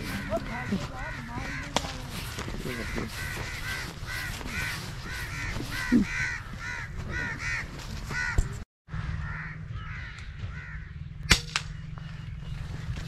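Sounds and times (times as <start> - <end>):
crows cawing: 0.0 - 11.4
sharp crack: 11.3 - 11.8.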